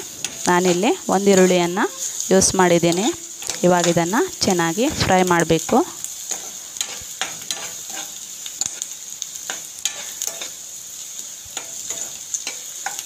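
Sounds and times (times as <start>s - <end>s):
onions sizzling in oil: 0.0s - 13.0s
spoon scraping and tapping pan: 6.3s - 8.8s, 9.5s - 10.6s, 11.6s - 13.0s.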